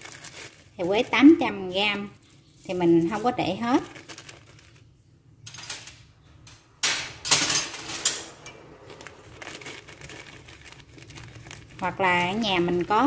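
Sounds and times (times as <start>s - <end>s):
plastic bag rustling and crinkling: 0.0s - 5.2s, 7.8s - 13.0s.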